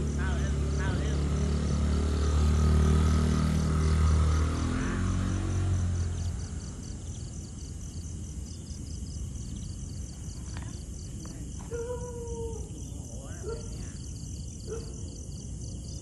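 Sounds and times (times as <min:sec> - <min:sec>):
motorcycle engine running: 0:00.0 - 0:07.4
crickets chirping: 0:00.0 - 0:16.0.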